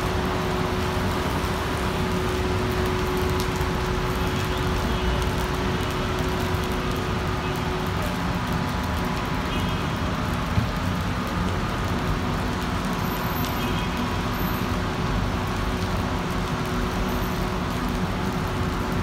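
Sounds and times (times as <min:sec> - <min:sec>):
rain: 0:00.0 - 0:19.0
traffic on wet road: 0:00.0 - 0:19.0.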